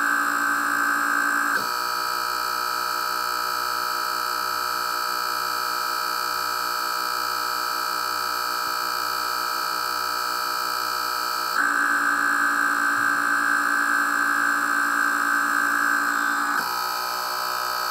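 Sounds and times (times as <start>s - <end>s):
air pumps buzzing: 11.5s - 17.9s.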